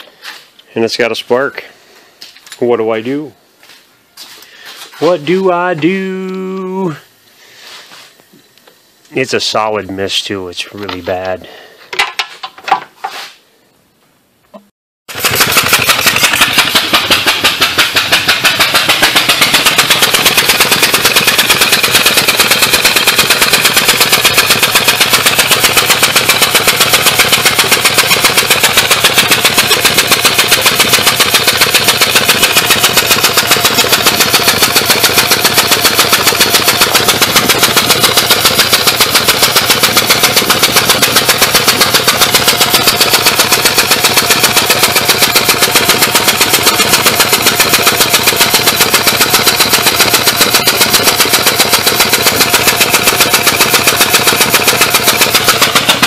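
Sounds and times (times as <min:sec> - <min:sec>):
engine popping from plug hole: 0:14.6 - 0:56.0.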